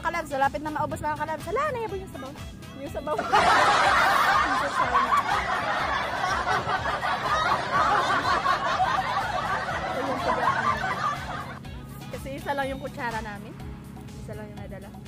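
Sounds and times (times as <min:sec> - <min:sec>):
people laughing: 0:03.1 - 0:11.6.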